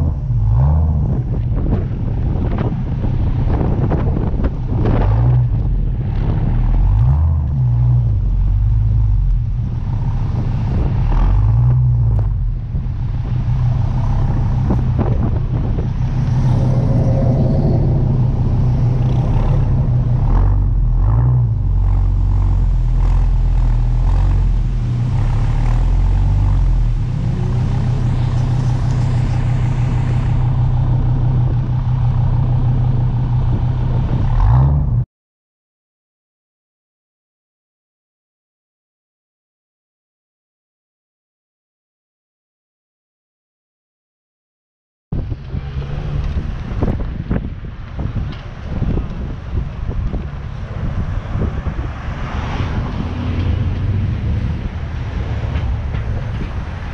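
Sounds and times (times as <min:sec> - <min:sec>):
car engine exhaust note: 0:00.0 - 0:35.0
wind noise: 0:00.0 - 0:35.0, 0:45.1 - 0:56.9.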